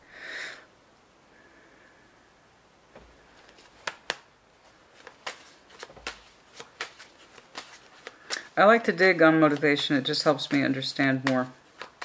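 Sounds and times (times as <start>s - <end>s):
cards clicking and tapping: 3.0s - 4.3s, 4.9s - 12.0s
cards rustling: 3.1s - 12.0s.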